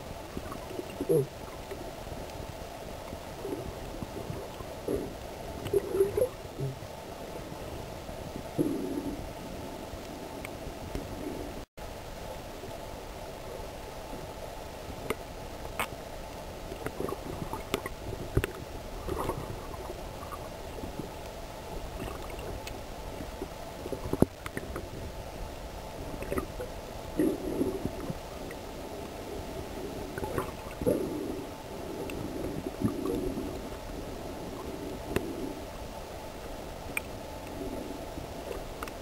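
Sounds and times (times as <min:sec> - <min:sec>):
muffled underwater rush: 0:00.0 - 0:39.0
sharp underwater clicks: 0:15.8 - 0:16.0, 0:38.5 - 0:39.0.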